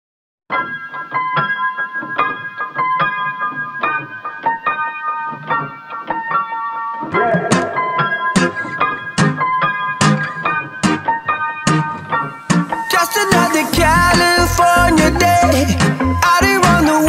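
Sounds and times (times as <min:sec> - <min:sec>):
electric piano chords: 0:00.5 - 0:17.0
percussion hits: 0:05.3 - 0:14.4.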